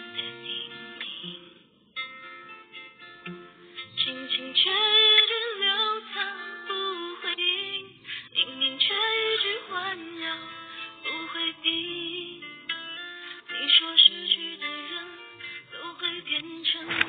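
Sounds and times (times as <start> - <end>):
woman singing gentle song: 4.0 - 17.0.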